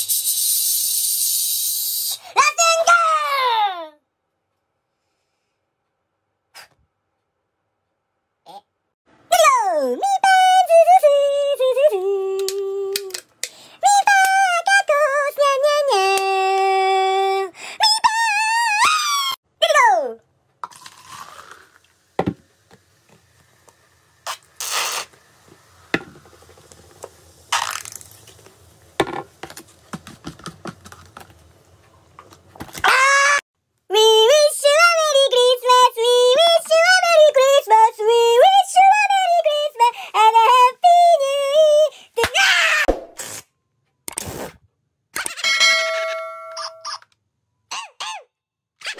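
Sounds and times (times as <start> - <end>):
soda fizzing in a plastic cup: 20.6 - 29.9.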